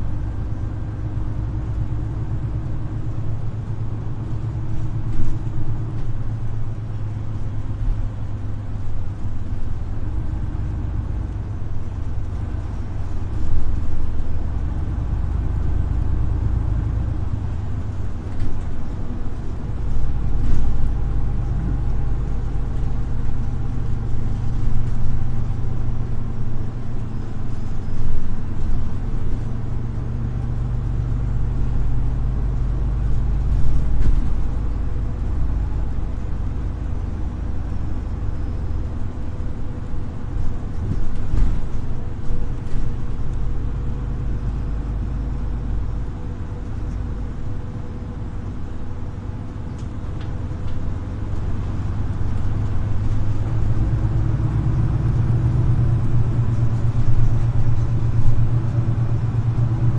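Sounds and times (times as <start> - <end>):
bus diesel engine drone: 0.0 - 59.9.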